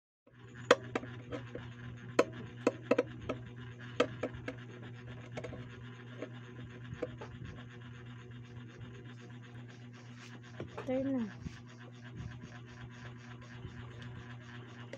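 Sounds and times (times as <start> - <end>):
steady low hum: 0.3 - 14.9
taps and clicks on plastic: 2.2 - 3.4.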